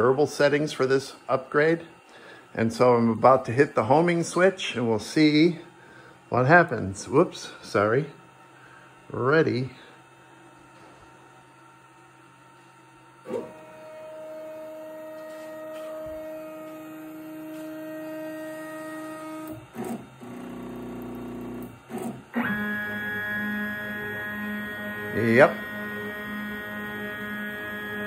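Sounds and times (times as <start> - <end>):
stepper motor whine: 11.6 - 28.0.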